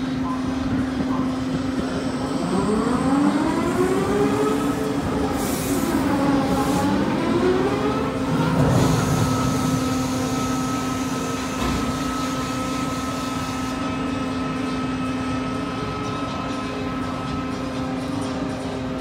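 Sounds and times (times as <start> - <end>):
ride machinery humming and whining: 0.0 - 19.0.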